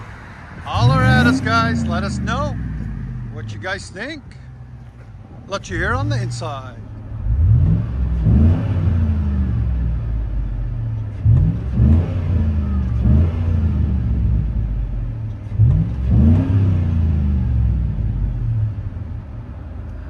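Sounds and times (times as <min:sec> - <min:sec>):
car engine revving: 0:00.0 - 0:19.2.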